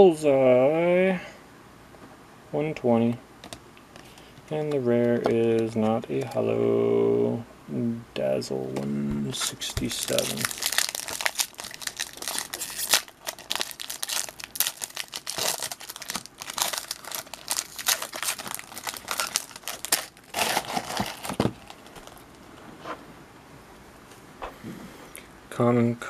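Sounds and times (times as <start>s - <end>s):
plastic wrapper crinkling and tearing: 9.4s - 22.4s.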